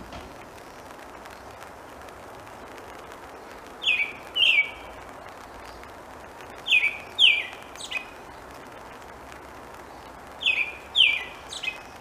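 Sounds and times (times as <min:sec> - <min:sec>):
rain hiss: 0:00.0 - 0:12.0
bird singing: 0:03.8 - 0:04.9, 0:06.6 - 0:08.5, 0:09.8 - 0:12.0.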